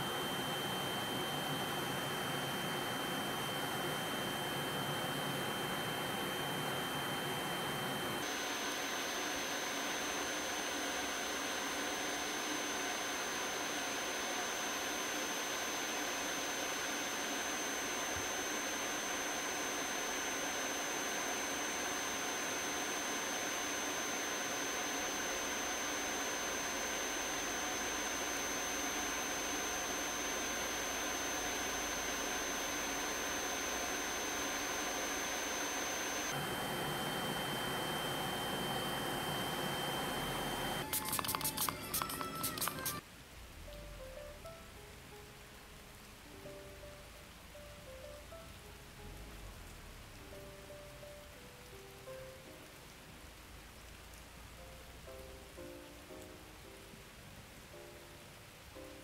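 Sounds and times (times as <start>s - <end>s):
electric nail drill whining: 0.0s - 43.0s.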